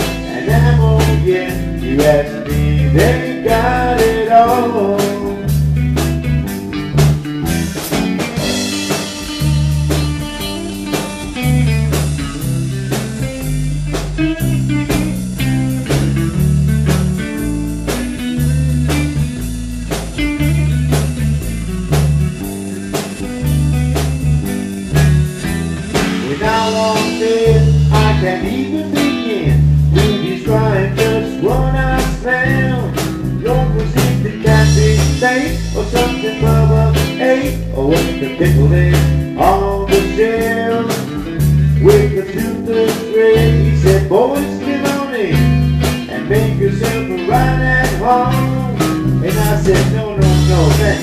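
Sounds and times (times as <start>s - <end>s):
drum kit steady beat: 0.0s - 51.0s
electric bass: 0.0s - 51.0s
electric guitar: 0.0s - 51.0s.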